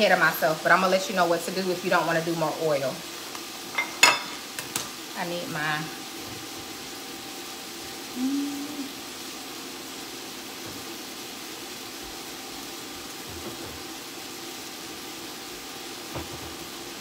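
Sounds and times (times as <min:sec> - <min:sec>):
faint steady hum: 0:00.0 - 0:10.5
vegetables sizzling in a pot: 0:00.0 - 0:17.0.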